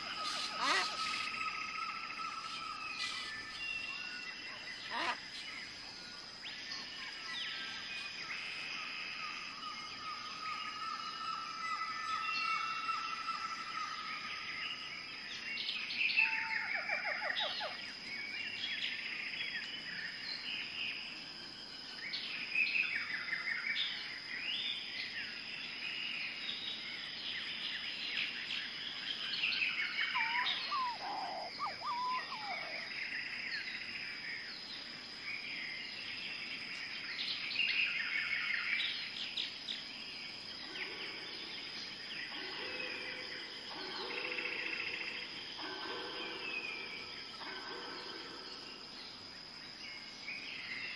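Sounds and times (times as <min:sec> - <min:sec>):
songbirds chirping: 0:00.0 - 0:50.9.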